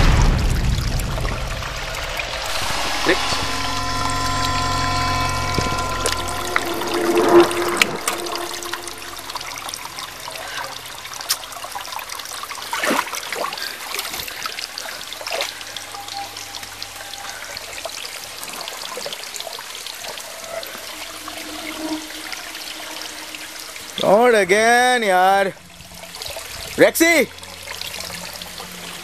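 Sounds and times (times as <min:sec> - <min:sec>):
water trickling: 0:00.0 - 0:29.0
falling whistle-like glide: 0:01.0 - 0:11.6, 0:14.5 - 0:26.3.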